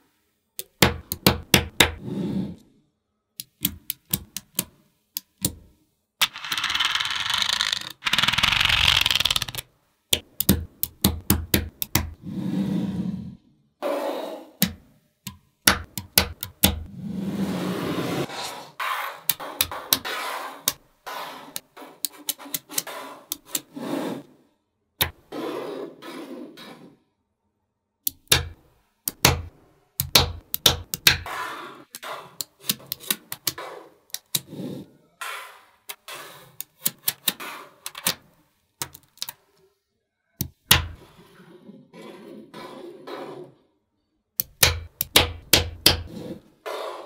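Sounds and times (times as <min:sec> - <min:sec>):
magnetic balls clicking together: 0:06.2 - 0:12.2, 0:28.1 - 0:31.3, 0:38.8 - 0:39.4, 0:44.4 - 0:46.0.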